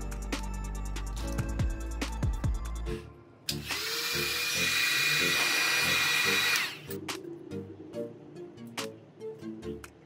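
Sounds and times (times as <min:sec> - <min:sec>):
handheld power tool whining: 0:03.5 - 0:06.9.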